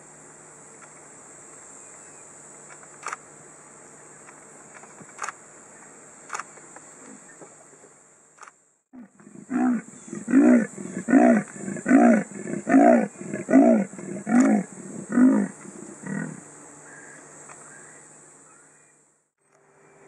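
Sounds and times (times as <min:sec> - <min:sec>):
leopard sawing call: 0:09.0 - 0:17.9.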